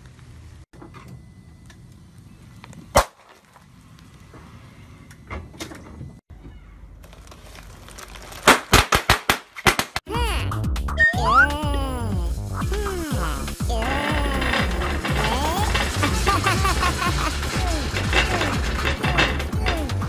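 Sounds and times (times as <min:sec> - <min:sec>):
packaging bursting in sharp pops: 0:08.3 - 0:10.1
rubber glove bursting pop: 0:08.5 - 0:10.0.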